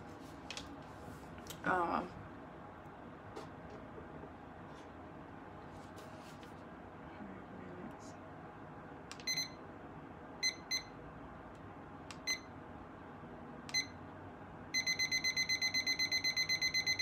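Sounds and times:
digital timer beeping: 14.8 - 17.0.

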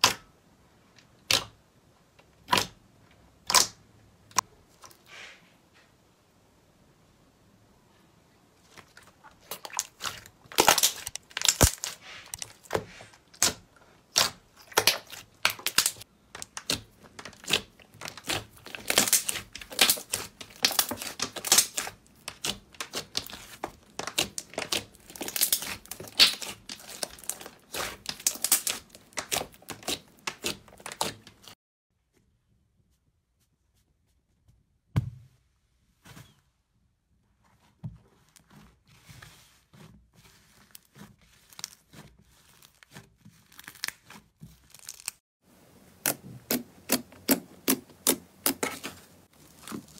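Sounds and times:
slime popping and crackling: 9.4 - 31.6, 43.4 - 45.2, 46.0 - 49.9.

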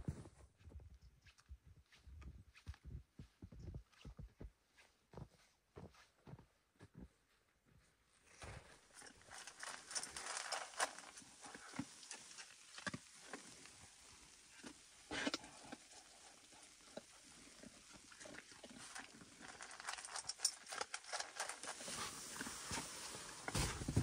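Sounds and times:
dog crunching dry kibble: 8.4 - 24.0.

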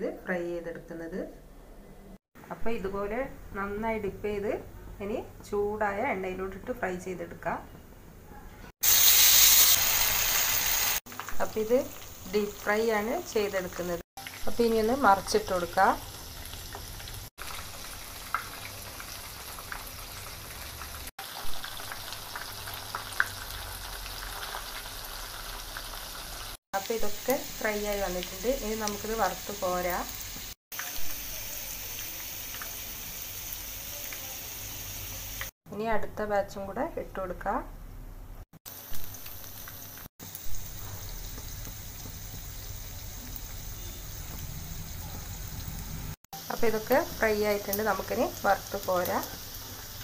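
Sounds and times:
oil crackles and pops: 8.8 - 12.2, 16.1 - 26.6, 38.7 - 44.9
deep-frying sizzle: 8.8 - 35.5, 38.6 - 50.0.

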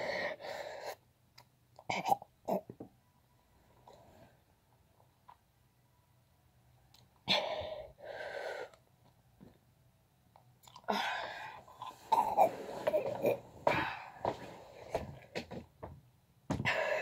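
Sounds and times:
boy breathing and grunting: 7.2 - 8.8, 10.8 - 15.3, 16.5 - 17.0.

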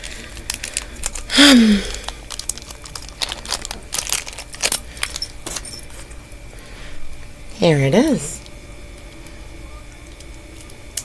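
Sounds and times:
plastic packaging crinkling: 0.0 - 6.0
person humming: 1.3 - 2.2.

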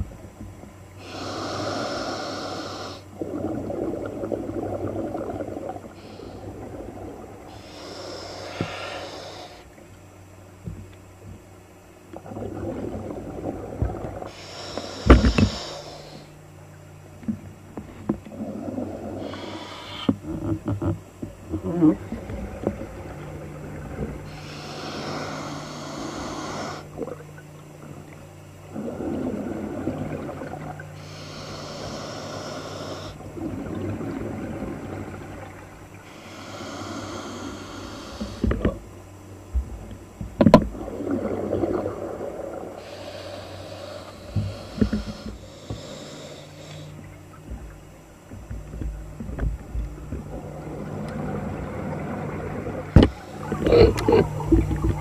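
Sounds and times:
steady low hum: 0.0 - 55.0
regulator inhalations: 1.0 - 3.1, 7.5 - 9.7, 14.3 - 16.3, 19.2 - 20.2, 24.3 - 26.9, 31.0 - 33.2, 36.0 - 38.6, 42.8 - 47.1
exhaled bubbles hissing: 1.0 - 9.9, 12.1 - 16.4, 17.8 - 20.7, 21.4 - 39.0, 40.5 - 55.0.

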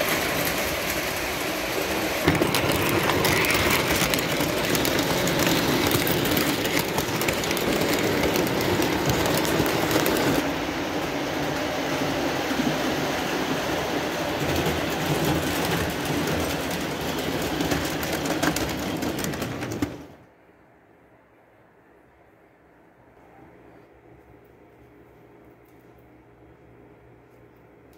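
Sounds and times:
model train wheels rumbling on rails: 0.0 - 20.2.

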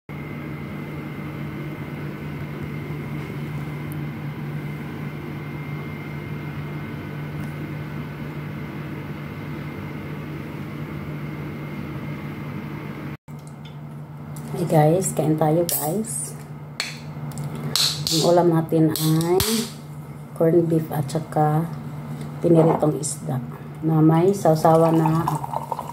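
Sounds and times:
low mechanical hum: 0.1 - 25.9.

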